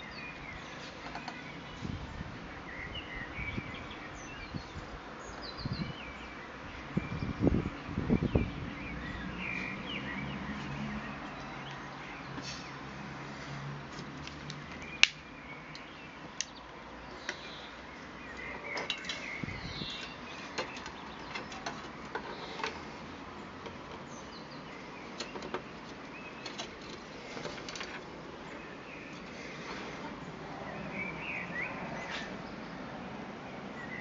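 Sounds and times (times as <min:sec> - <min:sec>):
birds chirping: 0:00.0 - 0:34.0.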